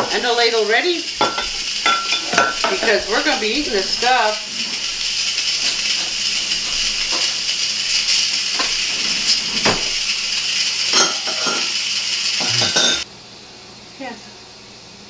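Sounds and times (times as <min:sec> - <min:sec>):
pressure cooker steam hiss: 0:00.0 - 0:13.1
cups and ladle clinking: 0:01.2 - 0:10.3, 0:10.9 - 0:11.7, 0:12.4 - 0:13.0.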